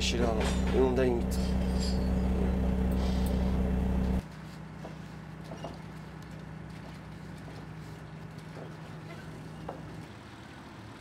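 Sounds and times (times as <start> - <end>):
boat engine droning: 0.0 - 4.2.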